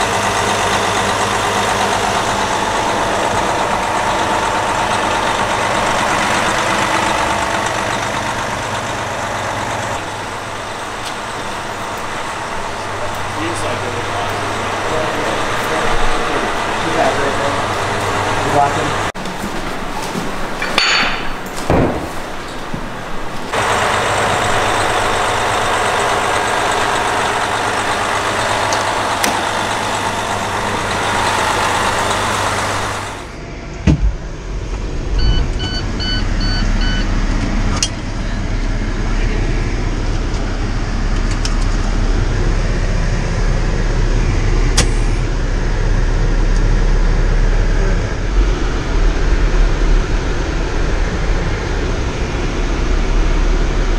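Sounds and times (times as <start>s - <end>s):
diesel engine idling: 0.0s - 53.9s
door thudding shut: 21.6s - 22.2s
short beeps: 35.2s - 37.1s.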